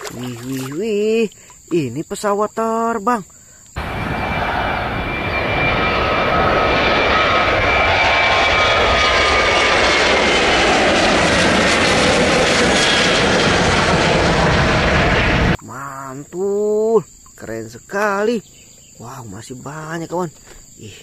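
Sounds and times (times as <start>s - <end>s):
jet engines roaring: 3.8s - 15.6s
thin engine whine: 3.8s - 15.6s.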